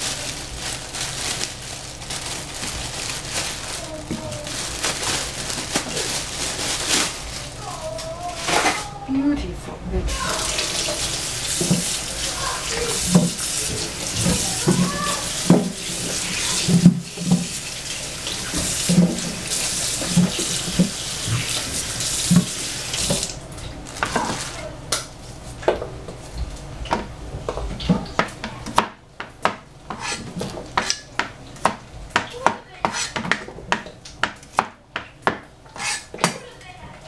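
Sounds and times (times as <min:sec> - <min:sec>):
tap running into sink: 0:10.1 - 0:23.4
cleaver chopping on plastic board: 0:30.8 - 0:36.4.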